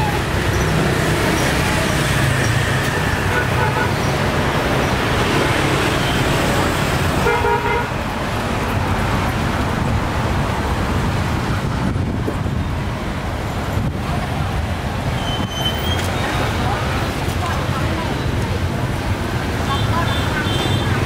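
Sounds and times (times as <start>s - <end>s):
road traffic rumble: 0.0s - 21.0s
vehicle horn tooting: 7.2s - 7.9s.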